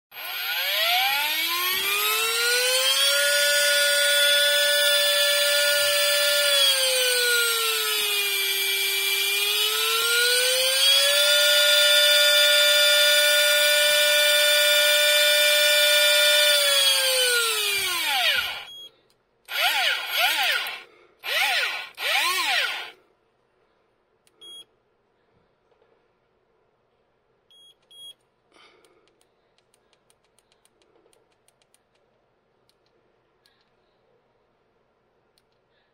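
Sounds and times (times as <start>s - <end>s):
electric fishing reel motor whining: 0.2s - 18.7s, 19.5s - 22.9s
faint beeps: 24.4s - 24.7s, 27.5s - 28.2s.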